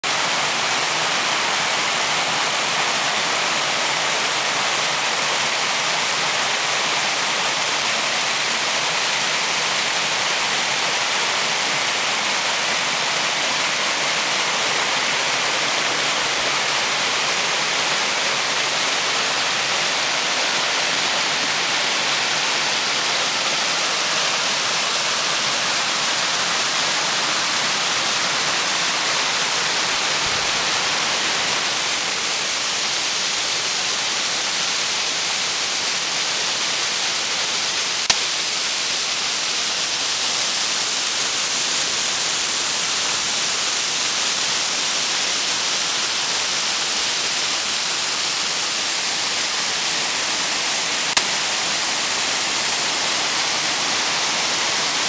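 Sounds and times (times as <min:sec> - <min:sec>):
waterfall rushing over rocks: 0:00.0 - 0:55.0.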